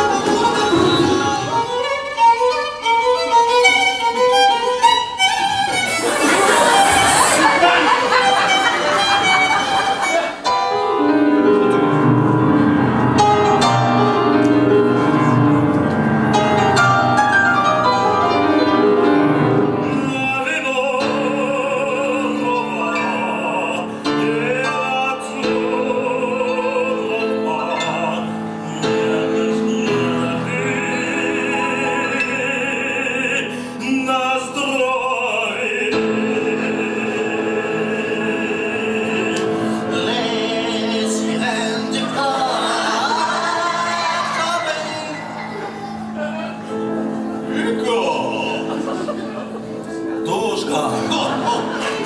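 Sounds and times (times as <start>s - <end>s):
grand piano playing classical music: 0.0s - 52.0s
operatic singing voice: 6.0s - 10.4s, 19.7s - 46.8s, 47.4s - 49.6s, 50.2s - 52.0s.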